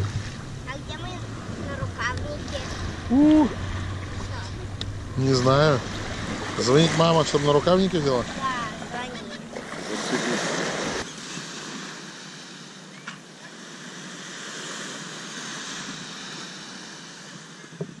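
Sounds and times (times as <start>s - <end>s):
waves washing onto beach: 0.0s - 18.0s.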